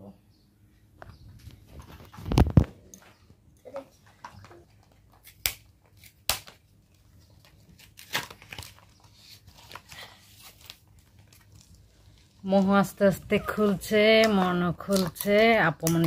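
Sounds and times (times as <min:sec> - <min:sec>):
plastic packaging tearing and crinkling: 0:05.1 - 0:12.4.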